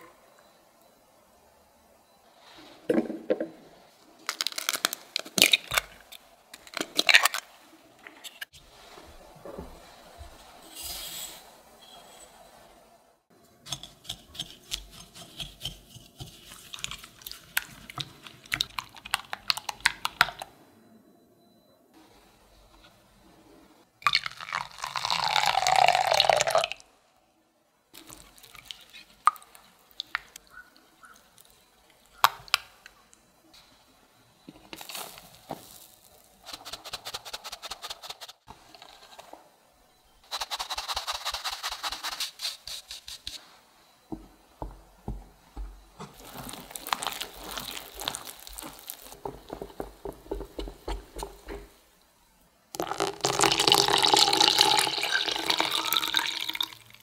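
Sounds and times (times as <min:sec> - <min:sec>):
batter mixing strokes: 0:13.6 - 0:19.3, 0:40.2 - 0:43.6, 0:45.5 - 0:51.8
flour sifted through sieve: 0:13.7 - 0:17.9, 0:34.8 - 0:39.4, 0:40.2 - 0:43.6, 0:46.1 - 0:50.4
milk pouring into bowl: 0:46.2 - 0:50.4, 0:52.8 - 0:57.0.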